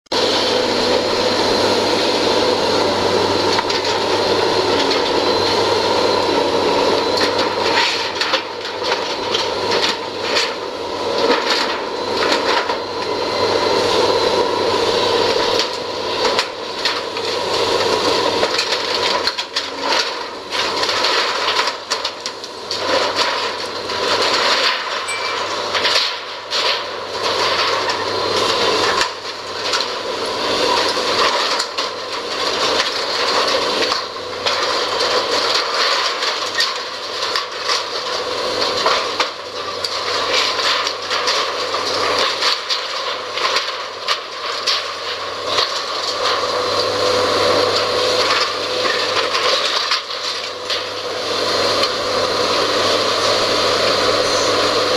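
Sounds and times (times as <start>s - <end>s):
excavator running: 0.1s - 54.9s
metal structure cracking and crunching: 7.0s - 12.9s, 15.2s - 51.0s.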